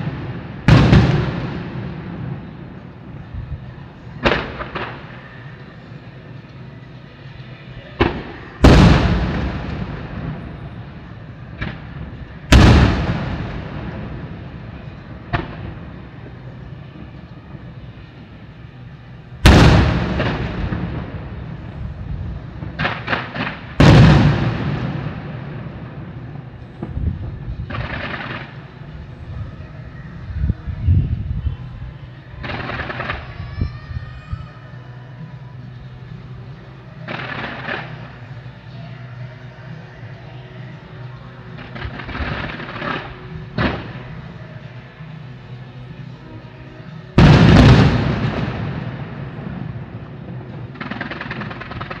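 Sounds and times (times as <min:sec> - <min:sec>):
firework bangs with echo: 0:00.0 - 0:03.6, 0:04.2 - 0:05.5, 0:08.0 - 0:17.2, 0:19.4 - 0:28.9, 0:37.0 - 0:38.3, 0:41.6 - 0:44.4, 0:47.1 - 0:52.0.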